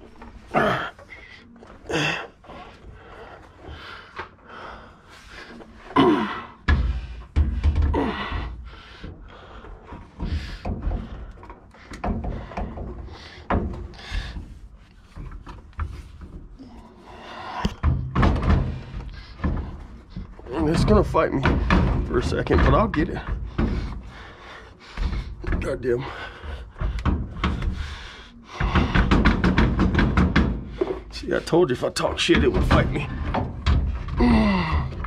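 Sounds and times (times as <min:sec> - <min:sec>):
man grunting and breathing heavily: 0:00.2 - 0:14.7, 0:32.5 - 0:35.0
heavy thuds: 0:01.9 - 0:35.0
metal knocking and rubbing on metal: 0:06.6 - 0:35.0.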